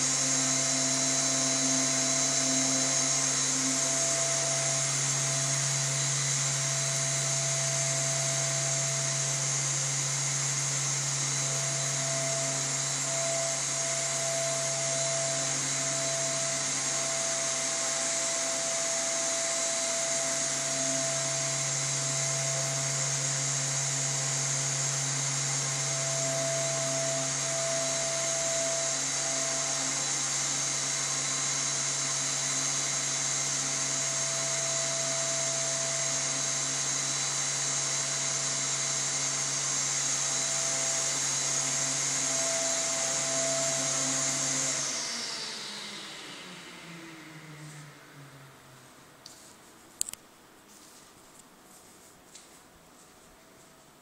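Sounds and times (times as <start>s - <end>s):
faint wavering tone: 0.0s - 29.7s
electric fan whirring: 0.0s - 54.0s.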